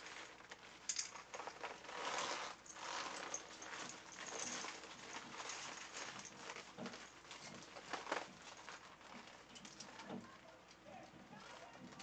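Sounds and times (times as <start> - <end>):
pvc clothing rustling and crinkling: 0.0 - 12.0.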